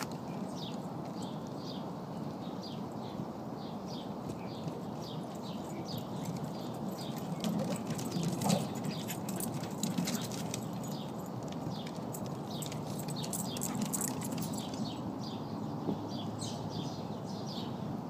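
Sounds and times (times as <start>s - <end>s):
dog paws clicking on deck: 4.2s - 15.1s.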